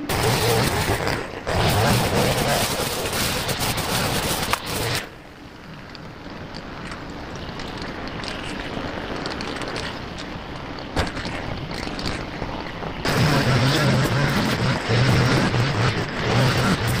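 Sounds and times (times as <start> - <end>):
brush cutter running: 0.0 - 5.1, 13.1 - 17.0.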